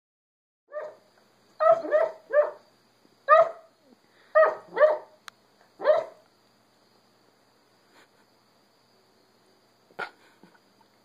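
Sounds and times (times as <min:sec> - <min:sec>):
puppy barking in sleep: 0:00.7 - 0:01.0, 0:01.6 - 0:02.6, 0:03.3 - 0:03.7, 0:04.4 - 0:05.2, 0:05.8 - 0:06.2.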